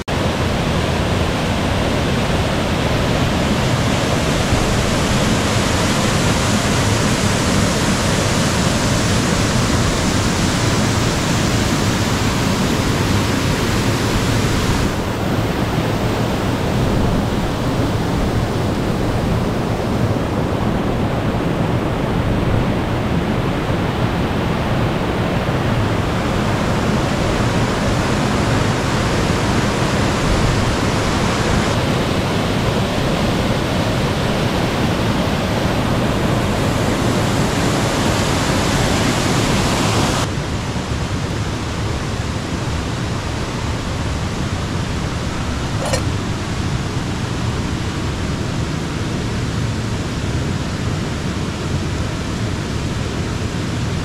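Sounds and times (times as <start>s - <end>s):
river rushing over rocks: 0.0s - 54.0s
short click: 45.8s - 46.1s.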